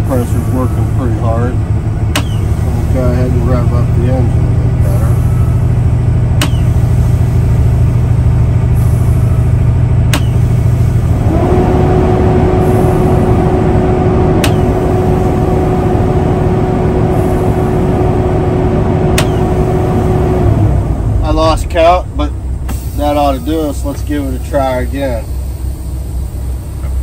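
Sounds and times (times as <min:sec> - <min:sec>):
diesel truck engine idling and revving: 0:00.0 - 0:27.0
engine whine: 0:00.0 - 0:27.0
brake valve clicks: 0:02.1 - 0:02.4, 0:06.4 - 0:06.8, 0:10.1 - 0:10.4.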